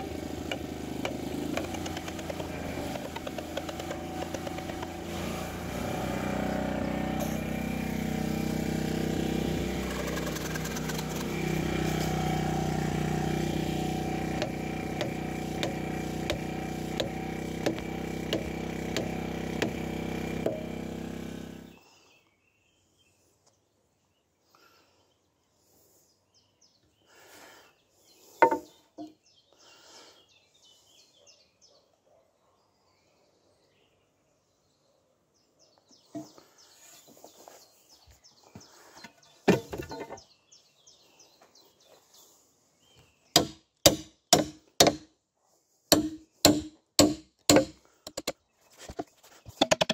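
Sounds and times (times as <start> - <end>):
petrol generator running: 0.0 - 21.8
faint birdsong: 0.0 - 49.9
sharp wooden knock: 0.5 - 5.0, 14.4 - 19.8, 43.4 - 45.1, 45.9 - 48.3.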